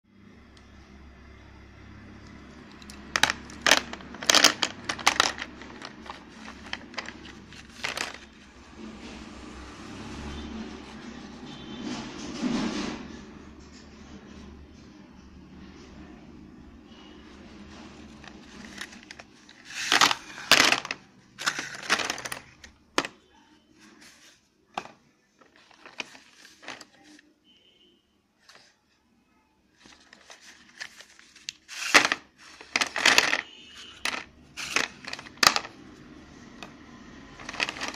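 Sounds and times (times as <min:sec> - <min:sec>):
pencils clicking and rattling on tray: 0:02.2 - 0:08.5, 0:17.8 - 0:23.2, 0:24.0 - 0:27.2, 0:29.8 - 0:37.9.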